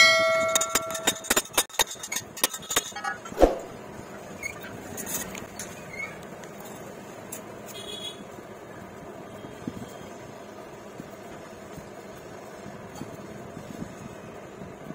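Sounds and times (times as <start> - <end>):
steel ringing: 0.0 - 1.4.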